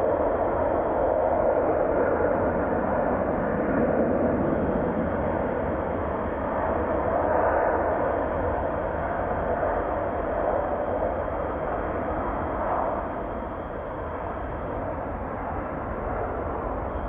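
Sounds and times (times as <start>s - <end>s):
jet engines rushing: 0.0s - 17.0s.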